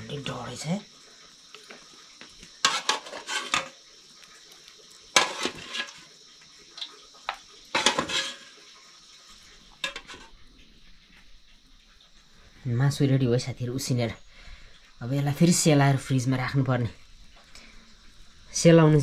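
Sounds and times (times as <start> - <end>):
metal spatula scraping metal pot: 2.6 - 3.8, 5.2 - 6.1, 7.7 - 8.6, 9.8 - 10.3.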